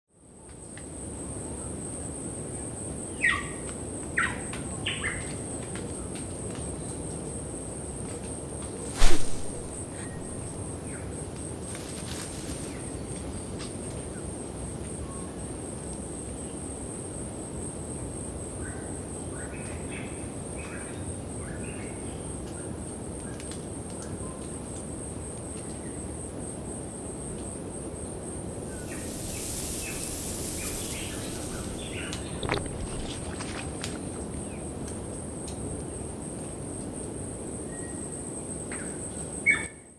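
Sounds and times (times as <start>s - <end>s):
low hiss: 8.8s - 13.6s, 26.0s - 39.2s
loud sharp snap: 9.0s - 9.7s
pulsing insect trill: 25.8s - 36.3s
bird chirps: 28.8s - 33.1s.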